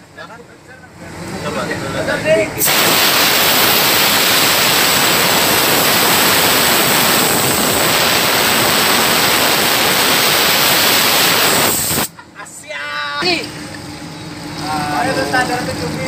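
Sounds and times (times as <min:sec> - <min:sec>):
compressed air gun hissing: 0:02.6 - 0:12.1.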